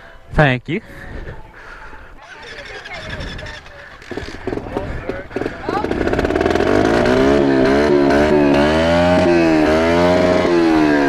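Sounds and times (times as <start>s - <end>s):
small motorbike engine revving: 3.2s - 11.0s.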